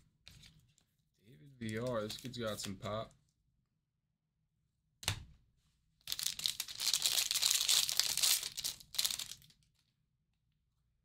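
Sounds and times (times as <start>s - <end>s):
wrapper crinkling and tearing: 6.1s - 9.6s.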